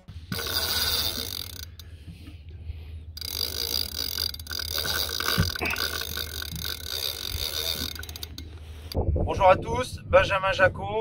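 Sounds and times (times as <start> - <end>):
low steady hum: 0.0 - 11.0
fishing reel drag running: 0.2 - 9.0.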